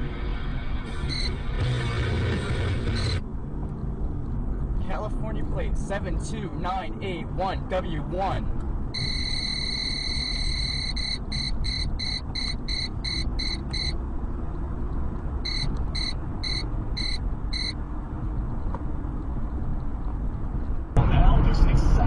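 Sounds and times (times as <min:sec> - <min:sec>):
road and engine noise: 0:00.0 - 0:22.0
high-pitched electronic beeping: 0:01.0 - 0:01.4, 0:02.9 - 0:03.2, 0:09.0 - 0:14.0, 0:15.5 - 0:17.8.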